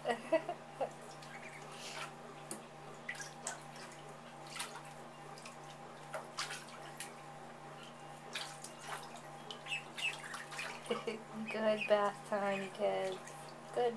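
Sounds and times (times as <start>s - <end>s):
steady low hum: 0.0s - 13.9s
water splashes and drips: 1.0s - 7.3s, 8.2s - 11.2s, 11.8s - 13.8s.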